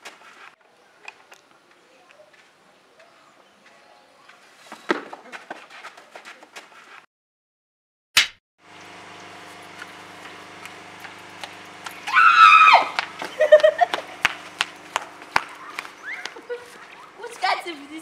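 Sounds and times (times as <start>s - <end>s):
footsteps in sandals running: 1.6s - 7.0s, 9.7s - 18.0s
woman screaming: 12.1s - 13.0s.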